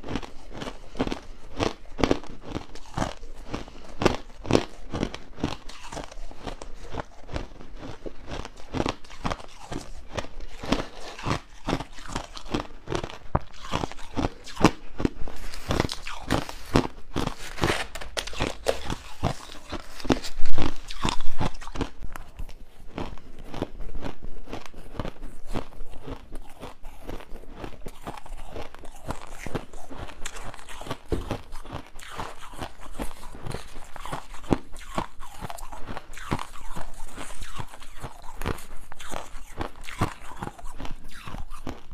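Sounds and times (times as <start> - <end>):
ice being chewed: 0.0 - 41.9.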